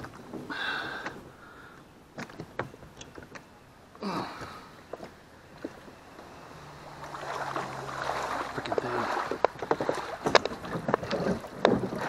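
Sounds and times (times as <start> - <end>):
water sloshing and splashing: 4.0 - 12.0.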